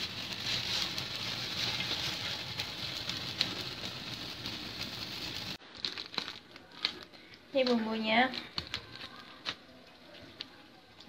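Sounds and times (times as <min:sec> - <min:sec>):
water boiling in a pot: 0:00.0 - 0:05.6.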